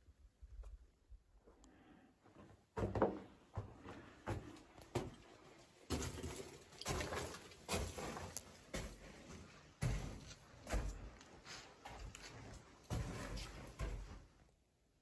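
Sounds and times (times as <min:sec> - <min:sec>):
footsteps crunching on dirt and rock: 0:05.9 - 0:14.3.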